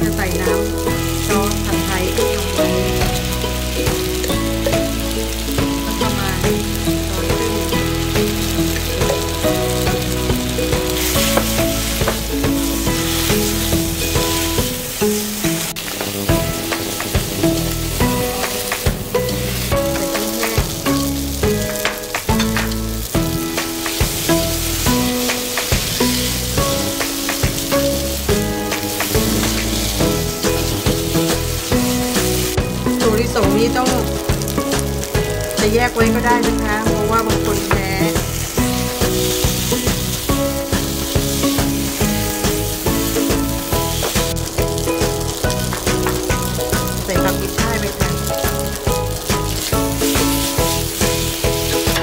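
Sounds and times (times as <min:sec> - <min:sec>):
background music: 0:00.0 - 0:52.0
noodles sizzling in a pan: 0:00.0 - 0:52.0
tongs stirring in a wok: 0:00.0 - 0:52.0
utensil clicking against pan: 0:15.8 - 0:35.7, 0:36.3 - 0:52.0.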